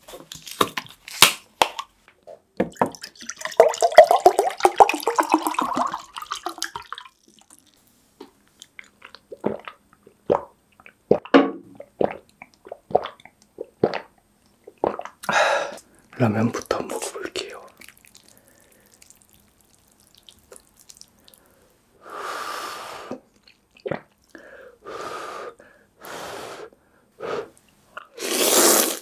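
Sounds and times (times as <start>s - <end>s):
water pouring into glass mug: 2.7s - 7.8s
swallowing gulps: 8.6s - 15.4s, 23.1s - 24.4s.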